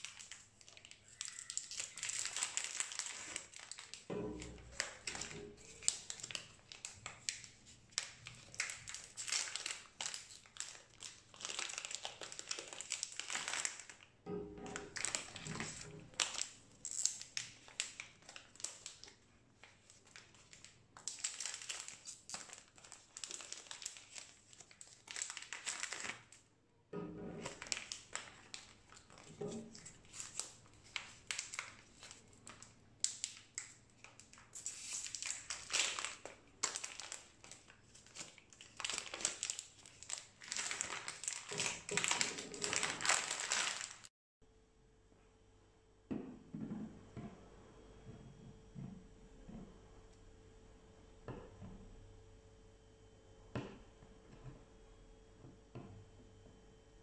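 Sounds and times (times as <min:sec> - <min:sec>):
plastic bags crinkling: 0:00.0 - 0:26.4, 0:27.0 - 0:44.1.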